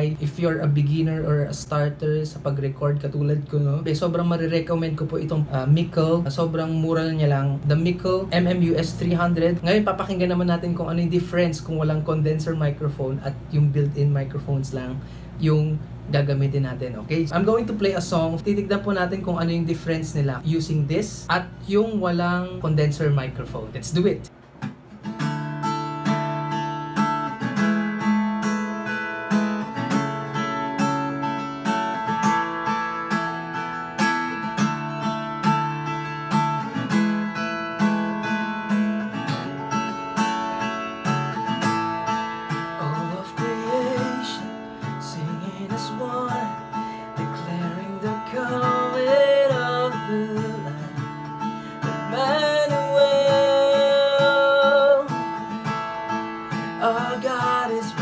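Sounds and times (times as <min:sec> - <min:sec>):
acoustic guitar strumming: 0:00.0 - 0:58.0
man singing: 0:42.8 - 0:51.2, 0:51.8 - 0:55.3, 0:56.8 - 0:58.0.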